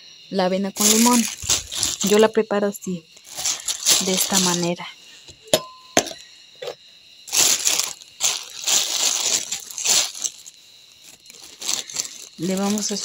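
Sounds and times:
package crinkling and rustling: 0.8 - 2.3, 3.2 - 4.8, 7.3 - 13.0.

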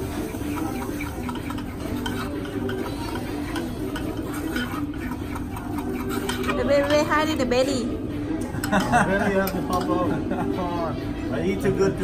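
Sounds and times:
spoon stirring liquid in bowl: 0.0 - 7.4.

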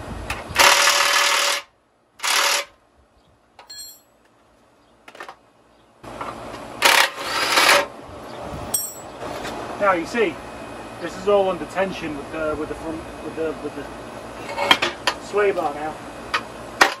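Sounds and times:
light metal clink: 3.6 - 4.1, 8.7 - 9.1.

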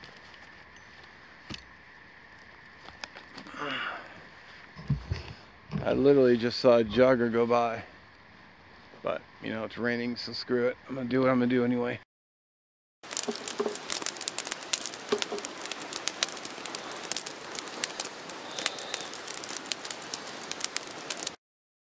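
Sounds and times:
campfire crackling: 0.0 - 4.7, 13.0 - 21.4.

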